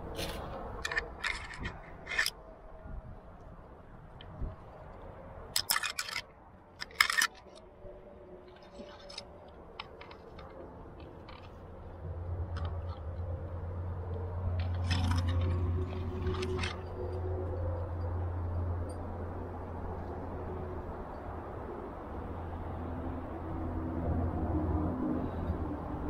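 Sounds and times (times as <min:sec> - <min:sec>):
metal climbing gear clinking: 0:00.1 - 0:02.4, 0:05.5 - 0:07.8, 0:08.4 - 0:13.3, 0:14.1 - 0:19.1.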